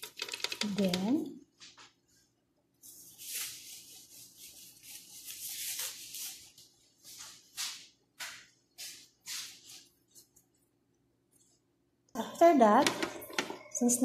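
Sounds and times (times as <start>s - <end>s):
rustling and rubbing: 1.6s - 10.6s.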